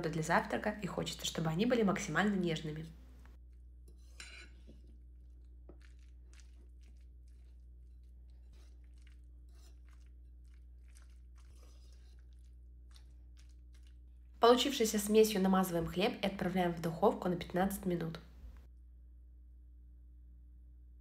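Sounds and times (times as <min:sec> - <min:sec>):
fork stirring in ceramic bowl: 0:03.8 - 0:14.3.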